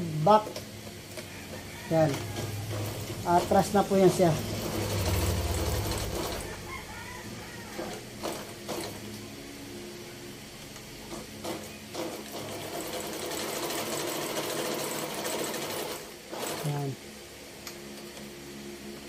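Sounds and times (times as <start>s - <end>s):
sewing machine running: 2.0s - 6.6s, 7.8s - 9.1s, 11.0s - 17.0s.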